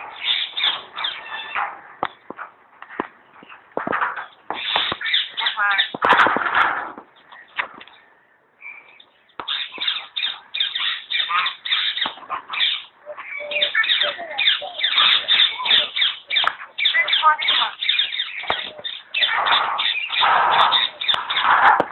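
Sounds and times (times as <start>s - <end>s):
myna chattering and whistling: 9.5s - 21.6s.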